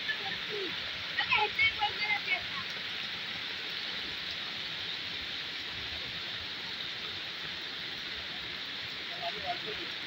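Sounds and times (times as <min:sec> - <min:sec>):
heavy rain: 0:00.0 - 0:10.0
river rushing: 0:00.0 - 0:10.0.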